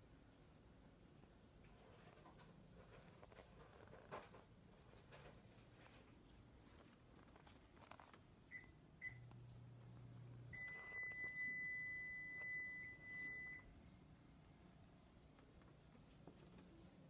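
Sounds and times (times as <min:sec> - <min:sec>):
long steady high beep: 0:10.5 - 0:13.7.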